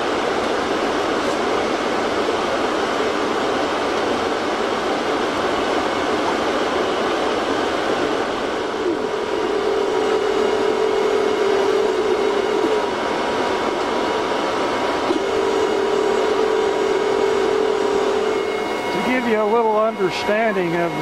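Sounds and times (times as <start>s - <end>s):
steady hum: 0.0s - 21.0s.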